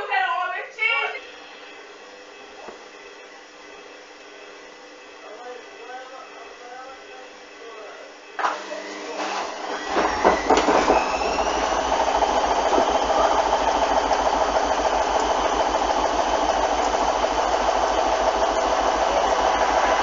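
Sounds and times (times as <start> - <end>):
washing machine spinning: 0.0 - 20.0
washing machine drum knocking: 9.8 - 16.0.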